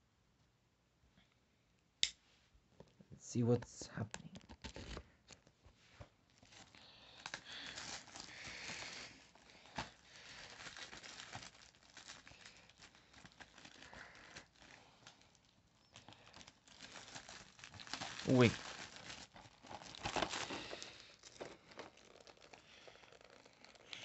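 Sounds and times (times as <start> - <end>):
plastic wrap crinkling and tearing: 4.2 - 5.5, 6.2 - 24.0.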